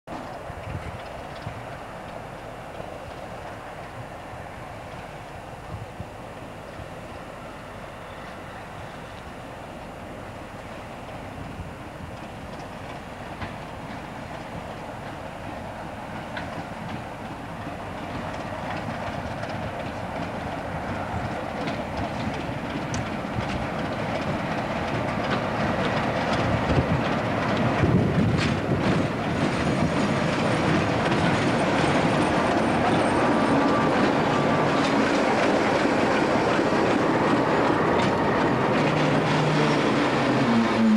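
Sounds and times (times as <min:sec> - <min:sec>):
wheels clicking over rail joints: 0:00.1 - 0:04.0, 0:12.0 - 0:40.9
diesel locomotive engine: 0:00.1 - 0:40.9.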